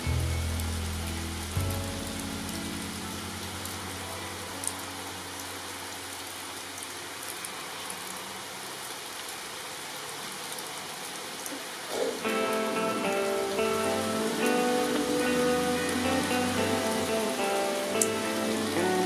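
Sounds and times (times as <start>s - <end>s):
music: 0.0s - 5.8s, 12.2s - 19.0s
rain falling on leaves: 0.0s - 19.0s.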